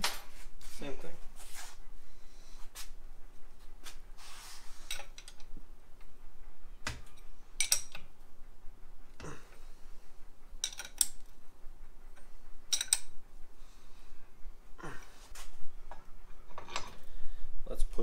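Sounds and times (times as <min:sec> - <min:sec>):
ringing metallic clinking: 0:07.1 - 0:08.0
wrench clicking: 0:12.7 - 0:13.1.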